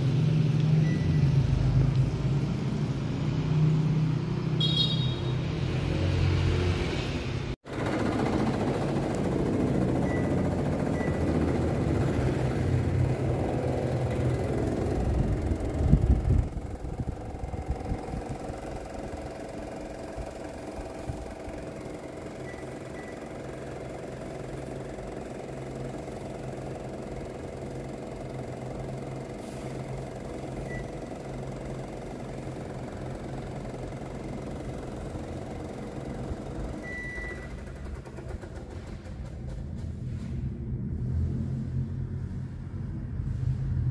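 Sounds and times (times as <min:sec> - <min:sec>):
short high beeps: 0:04.6 - 0:05.4, 0:36.8 - 0:37.5
air conditioner blower humming: 0:07.6 - 0:43.4.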